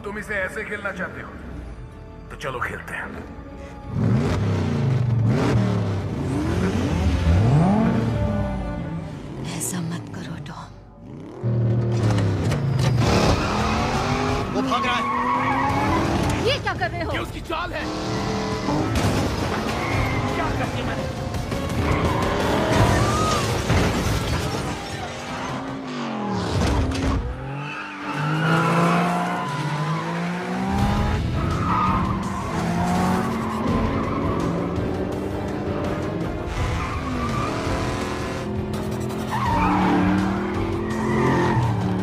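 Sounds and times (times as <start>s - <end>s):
car engines revving: 3.8s - 10.1s, 11.0s - 42.0s
tyres squealing: 12.6s - 16.6s.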